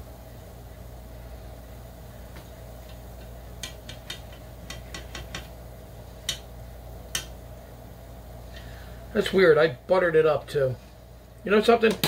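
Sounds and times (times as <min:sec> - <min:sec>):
steady low hum: 0:00.0 - 0:12.0
tongs clicking on air-fryer basket: 0:02.8 - 0:05.6, 0:06.2 - 0:06.5, 0:07.1 - 0:07.4.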